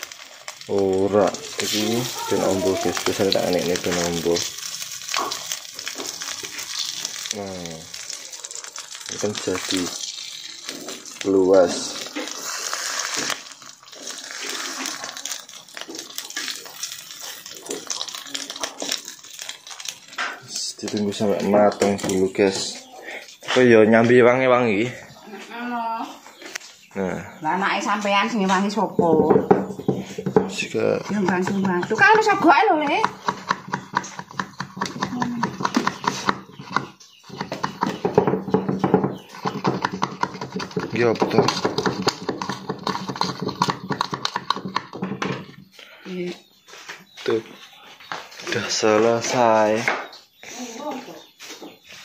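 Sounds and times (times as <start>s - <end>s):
egg sizzling in a wok: 0.0s - 22.7s, 31.1s - 41.0s
spatula scraping and tapping pan: 29.0s - 45.6s.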